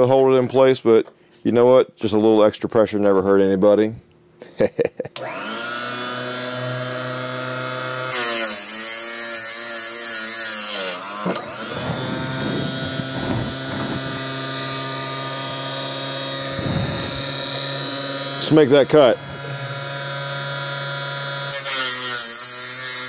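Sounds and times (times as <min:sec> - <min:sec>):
chop saw motor whining: 0:05.2 - 0:23.0
saw blade grinding through metal: 0:06.2 - 0:23.0.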